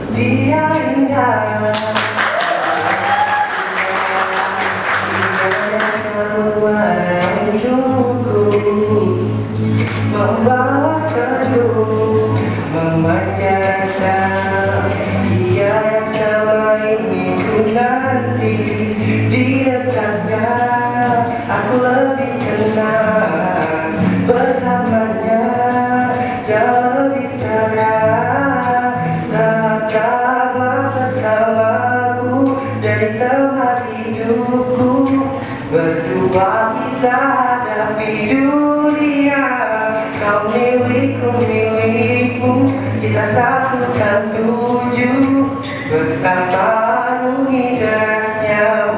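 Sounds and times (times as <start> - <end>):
man singing: 0.0 - 48.9
strummed acoustic guitar: 0.0 - 48.9.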